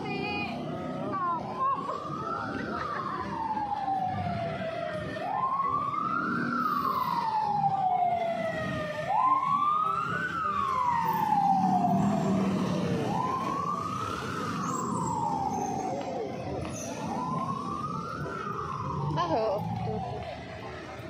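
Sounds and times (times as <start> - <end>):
street traffic: 0.0 - 21.0
siren wailing: 0.2 - 21.0.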